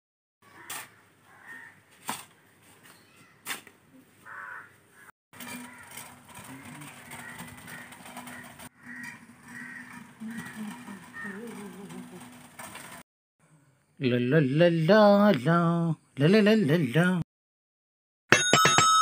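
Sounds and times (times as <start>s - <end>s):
crows cawing: 0.5s - 1.8s, 4.2s - 11.6s.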